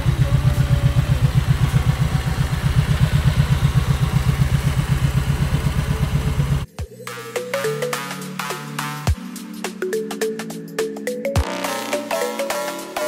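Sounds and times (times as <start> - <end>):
motorcycle engine idling: 0.0 - 6.7
electronic music: 6.6 - 13.0.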